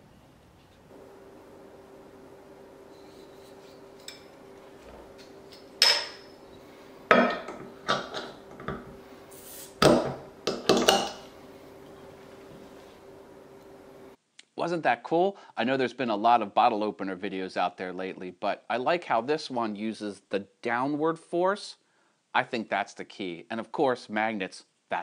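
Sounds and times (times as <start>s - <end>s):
faint steady hum: 0.0s - 14.2s
glass and metal clinks: 5.5s - 6.4s.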